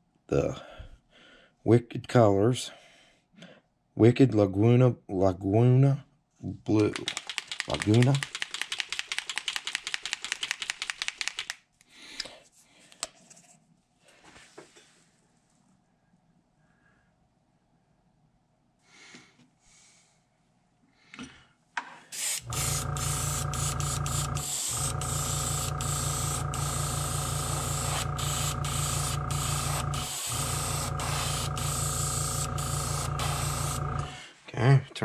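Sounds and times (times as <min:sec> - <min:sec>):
faint handling sounds: 0:12.3 - 0:15.8
airbrush spraying hiss: 0:22.1 - 0:34.2.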